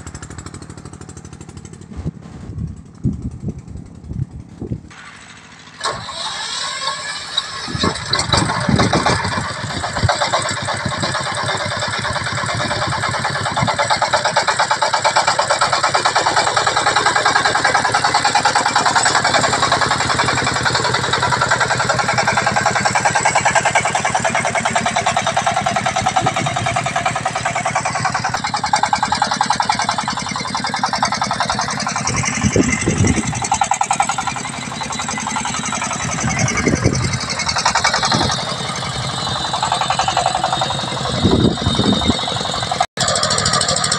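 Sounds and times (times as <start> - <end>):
diesel engine chugging: 0.0 - 43.9
low thumps: 0.6 - 4.9.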